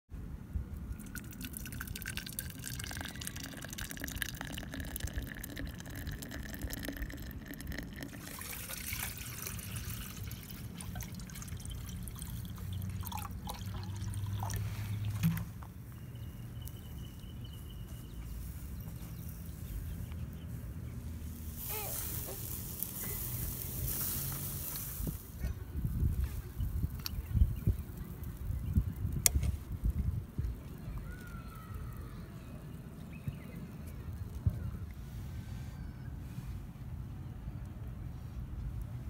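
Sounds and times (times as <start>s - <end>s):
liquid pouring into a vessel: 1.0s - 15.5s.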